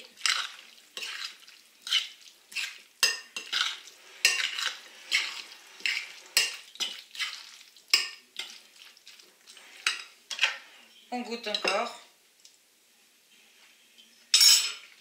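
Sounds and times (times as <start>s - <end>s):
spoon scraping wet salad: 0.0s - 10.7s
spoon clinking against glass: 14.3s - 14.9s.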